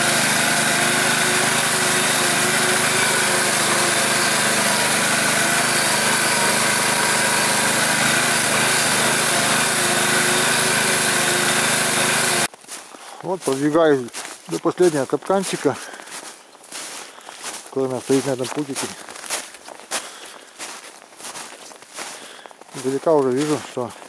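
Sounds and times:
vehicle engine running: 0.0 - 12.5.

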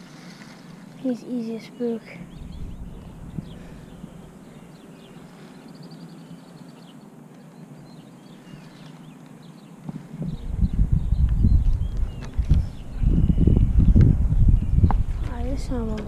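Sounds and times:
birds chirping: 0.0 - 16.0
outdoor background hum: 0.0 - 16.0
low rumble: 2.2 - 4.7, 10.2 - 16.0.

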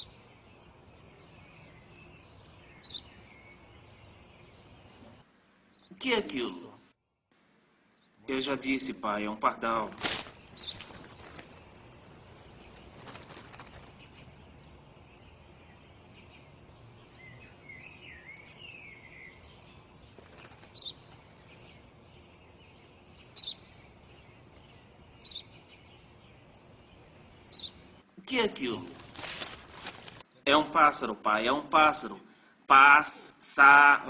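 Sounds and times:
sparrow chirping: 0.0 - 6.0, 10.3 - 28.1
faint steady hiss: 3.2 - 13.1.

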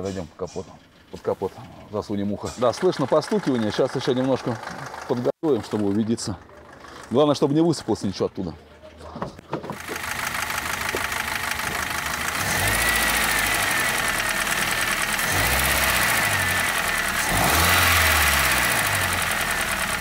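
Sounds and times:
car engine running: 0.6 - 20.0
light engine knocking: 2.6 - 7.0, 9.8 - 20.0.

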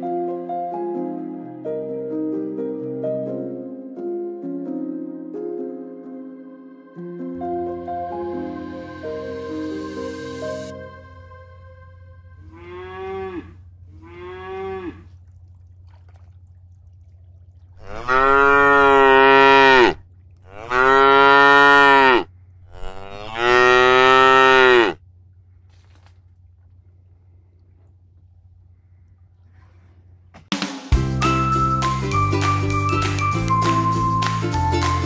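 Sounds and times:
cattle mooing: 12.4 - 15.1, 17.8 - 25.0.

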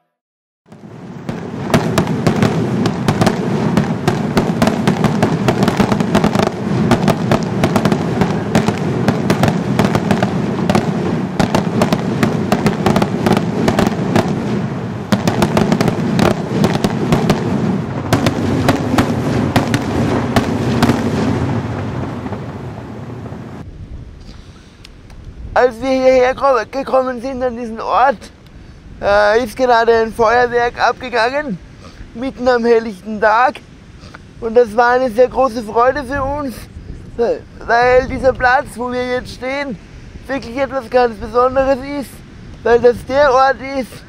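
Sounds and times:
fireworks bangs and crackles: 0.7 - 23.6
noisy rumble: 0.7 - 33.4.

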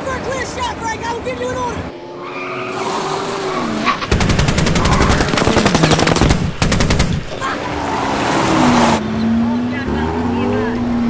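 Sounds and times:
machine gun bursts: 4.0 - 7.4.

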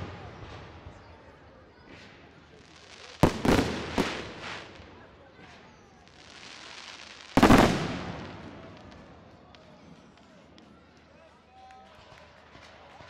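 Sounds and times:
firework hiss: 2.0 - 5.0, 5.6 - 8.6.

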